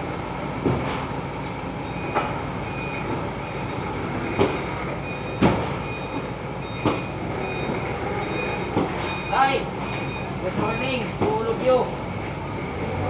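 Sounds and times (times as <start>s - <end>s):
forklift engine running: 0.0s - 13.0s
reversing alarm beeping: 1.8s - 11.2s.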